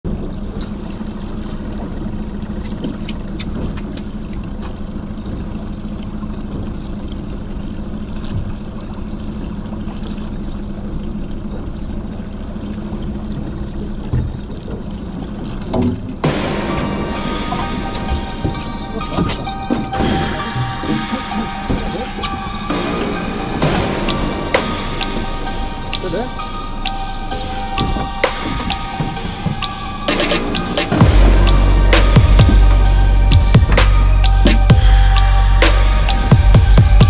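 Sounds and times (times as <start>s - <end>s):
outboard motor running: 0.0s - 37.0s
water washing against hull: 0.0s - 37.0s
music: 16.2s - 37.0s.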